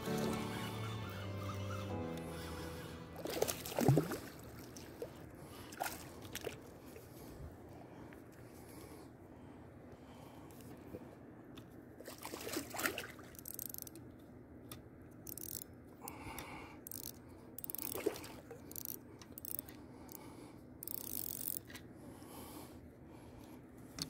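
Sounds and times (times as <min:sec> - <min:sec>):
fishing reel whirring and clicking: 0:00.1 - 0:03.6, 0:13.3 - 0:14.0, 0:15.2 - 0:21.8.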